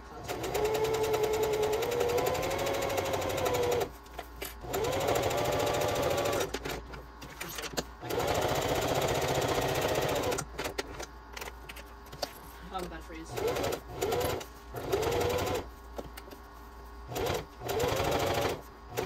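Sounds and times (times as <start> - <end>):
sewing machine motor whine: 0.2 - 3.9, 4.6 - 6.6, 8.0 - 10.4, 13.3 - 15.6, 17.1 - 19.0.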